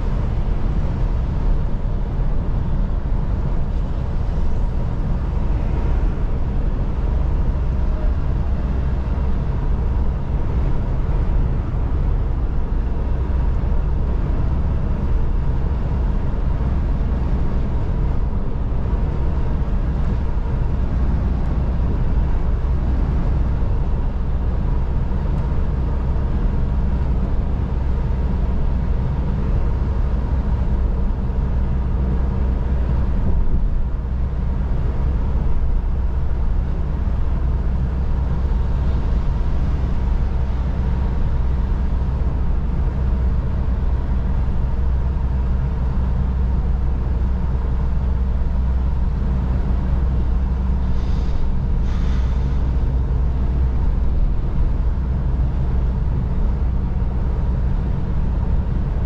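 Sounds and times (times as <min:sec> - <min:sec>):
diesel engine hum: 0:00.0 - 0:59.0
tyres hissing on wet road: 0:50.8 - 0:52.9.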